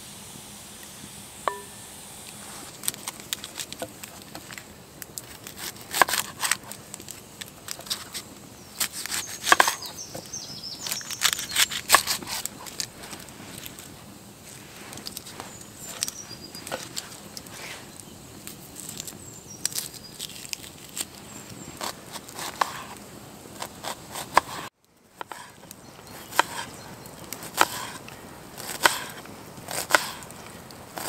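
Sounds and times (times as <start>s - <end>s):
campfire crackling: 0.1s - 31.0s
knife slicing onion on board: 5.6s - 6.7s, 8.8s - 10.0s, 21.8s - 22.9s, 23.6s - 25.5s, 26.2s - 26.7s, 27.4s - 28.0s, 28.6s - 30.3s.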